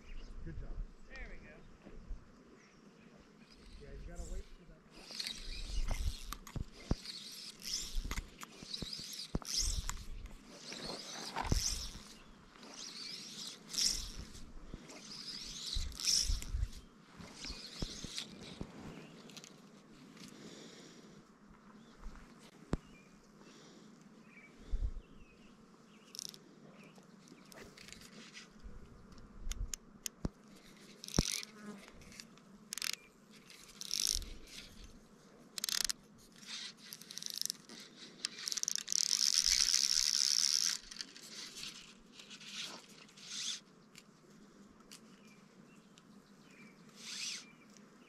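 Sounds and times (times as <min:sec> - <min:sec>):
fishing reel drag ratcheting: 0:04.9 - 0:18.7, 0:26.1 - 0:26.4, 0:29.5 - 0:34.9, 0:35.5 - 0:43.7, 0:47.0 - 0:47.5.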